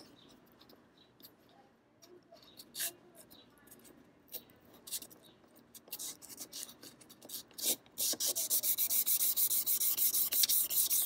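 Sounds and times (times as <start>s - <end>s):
sandpaper rubbing steel blade: 5.9s - 11.0s.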